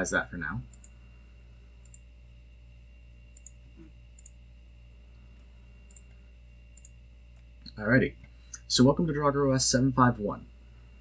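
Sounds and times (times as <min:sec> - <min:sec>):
low electrical hum: 0:00.0 - 0:11.0
computer mouse clicks: 0:01.8 - 0:02.0, 0:03.4 - 0:03.6, 0:04.2 - 0:04.4, 0:05.9 - 0:06.1, 0:06.8 - 0:07.0.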